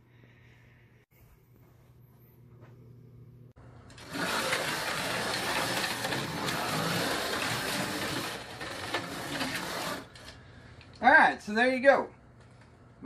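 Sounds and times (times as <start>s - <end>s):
slot car motors whirring: 3.8s - 10.4s.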